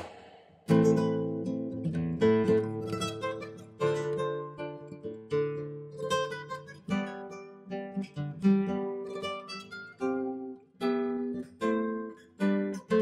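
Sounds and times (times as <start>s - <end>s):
guitar picking notes and chords: 0.7s - 13.0s.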